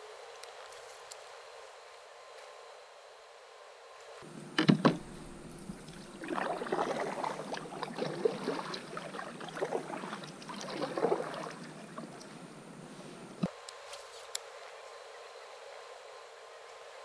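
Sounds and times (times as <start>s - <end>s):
paddle splashing through water: 4.9s - 12.4s.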